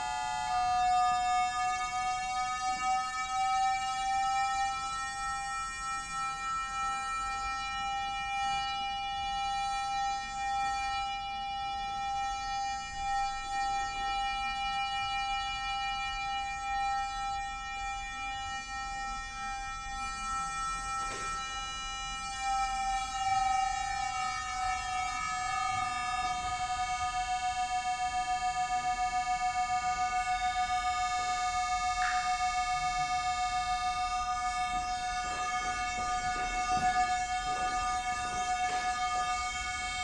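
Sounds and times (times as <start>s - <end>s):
held electronic metronome tone: 11.9s - 40.0s.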